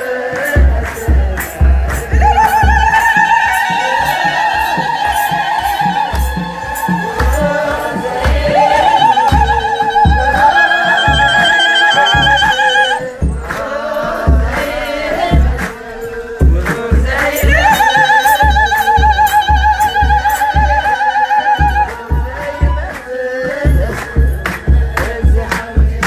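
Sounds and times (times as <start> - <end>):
group singing: 0.0 - 26.0
low thumps: 12.2 - 17.8.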